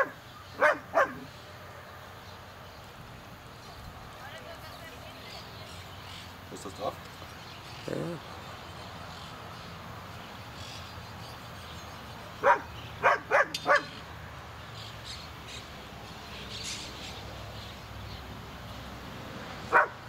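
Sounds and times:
dog barking: 0.0 - 1.3, 12.4 - 14.0, 19.7 - 20.0.

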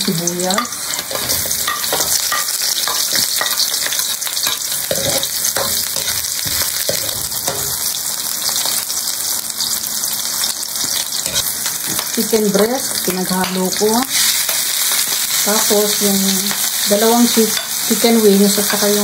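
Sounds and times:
onions sizzling in hot oil: 0.0 - 19.0
metal spatula scraping a wok: 0.5 - 7.9, 11.1 - 12.2.

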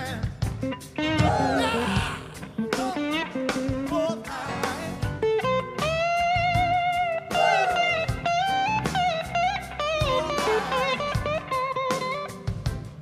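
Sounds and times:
rock drums: 0.0 - 13.0
electric guitar solo: 0.7 - 3.7, 5.2 - 12.5.

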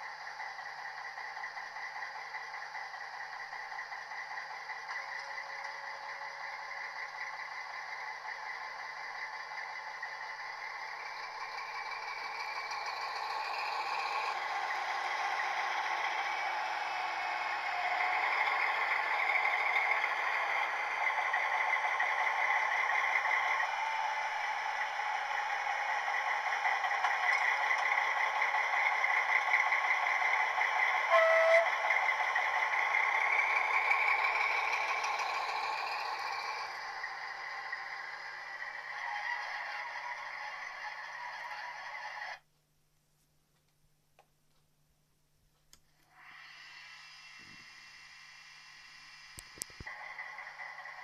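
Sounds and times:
model train diesel engine sound: 0.0 - 42.5, 45.0 - 51.0
model train motor and wheel noise: 0.0 - 42.5, 45.6 - 51.0
brief tone: 31.0 - 32.0.

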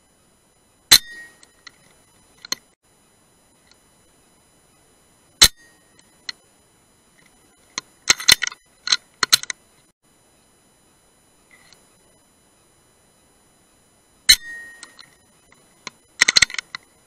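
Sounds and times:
metallic clicks of rifle cocking: 16.2 - 16.8.

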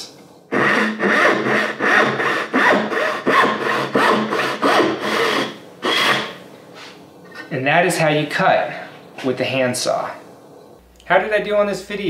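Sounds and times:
hand saw cutting wood: 0.5 - 6.4.

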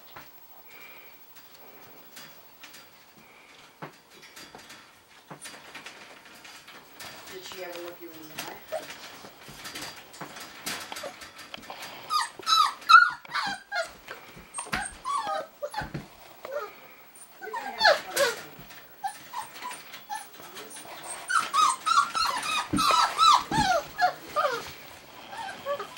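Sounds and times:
puppy whining and yipping: 8.6 - 9.0, 12.0 - 25.9
puppy growling: 10.4 - 25.9.

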